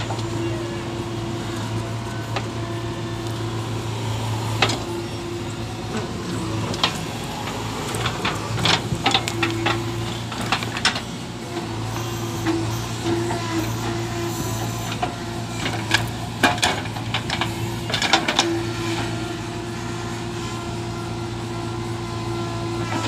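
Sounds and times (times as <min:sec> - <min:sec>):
diesel engine running under load: 0:00.0 - 0:23.0.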